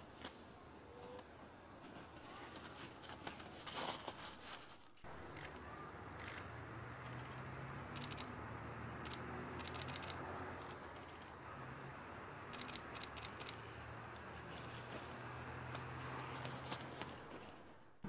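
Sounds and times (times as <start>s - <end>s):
camera shutters clicking: 9.0s - 10.2s, 12.5s - 13.6s.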